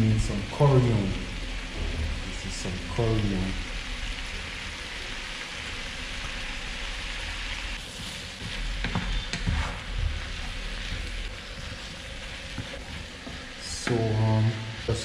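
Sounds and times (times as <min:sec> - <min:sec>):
food sizzling in a frying pan: 0:00.0 - 0:15.0
spatula scraping a pan: 0:07.8 - 0:13.6.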